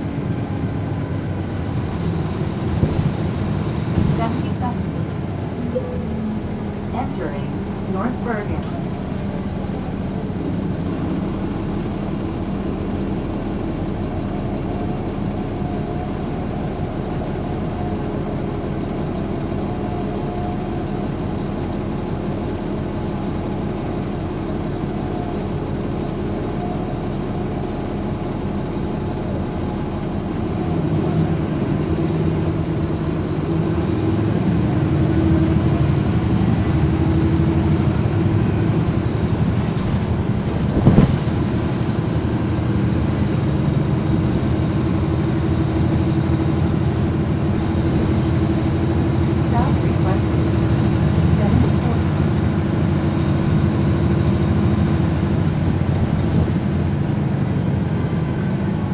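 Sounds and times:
bus diesel engine running: 0.0s - 58.9s.

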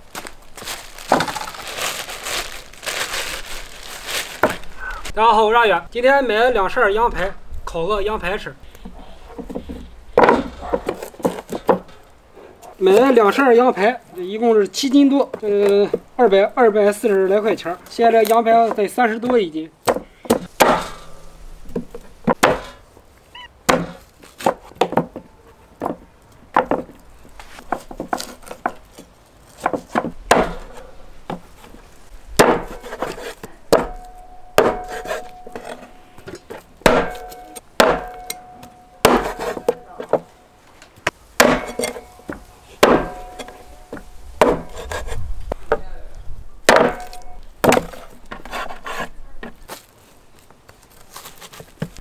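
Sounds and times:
cleaver chopping on wooden board: 10.2s - 11.8s, 19.8s - 21.1s, 21.8s - 22.8s, 23.7s - 25.1s, 29.6s - 30.7s, 32.4s - 34.0s, 34.6s - 35.6s, 36.8s - 38.3s, 39.0s - 40.2s, 41.4s - 43.6s, 44.4s - 45.1s, 46.7s - 48.7s.

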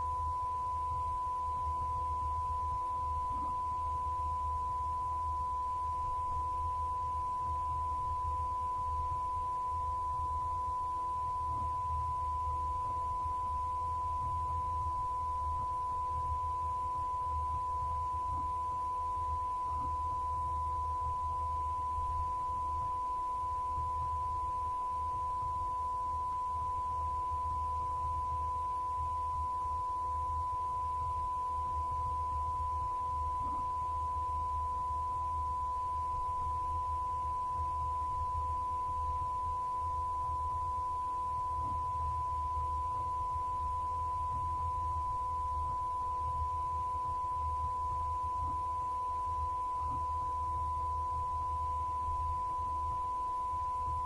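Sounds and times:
faint low hum: 0.0s - 54.0s.

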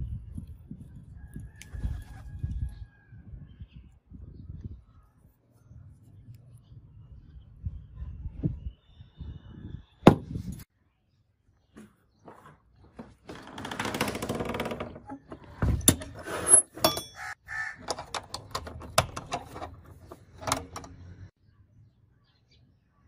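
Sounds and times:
metal door bolt clicking: 13.6s - 21.3s
padlock latching: 15.0s - 17.2s, 17.8s - 21.3s
rasping metal scrape: 15.0s - 21.3s.

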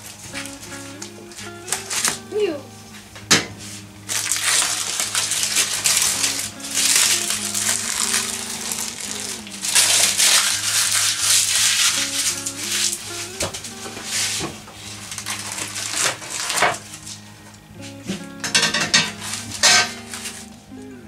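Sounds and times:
quiet background music: 0.0s - 21.0s
parchment paper crinkling: 4.0s - 17.3s, 19.0s - 20.6s.

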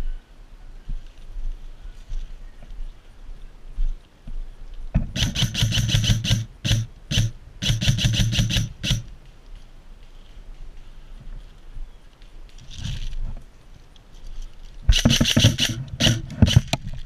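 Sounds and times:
airsoft rifle firing: 5.0s - 9.1s, 14.9s - 16.8s.

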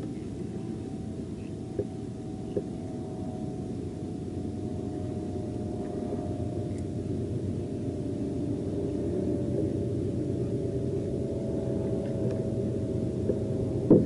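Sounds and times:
distant engine running: 0.0s - 14.0s.

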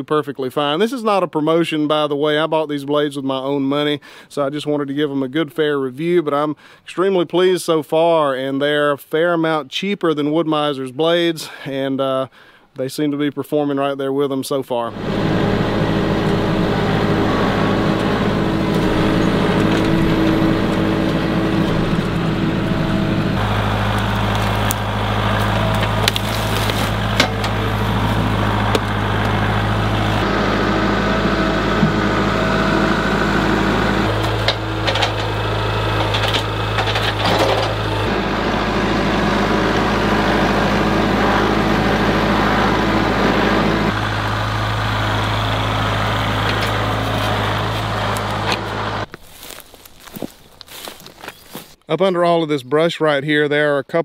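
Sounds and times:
tractor diesel engine running: 14.9s - 51.8s
sharp knocks and rattles: 34.2s - 37.9s.

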